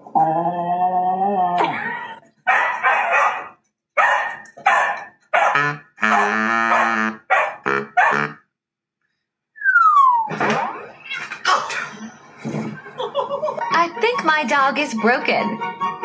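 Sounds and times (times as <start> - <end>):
dogs barking: 2.4 - 8.4.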